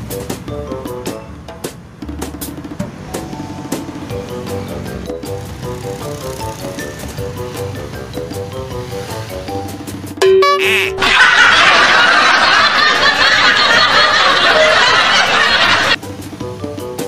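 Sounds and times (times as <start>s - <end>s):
background music: 0.0s - 11.0s, 11.6s - 17.0s
short held tone: 10.2s - 11.0s
canned laughter: 10.6s - 16.0s.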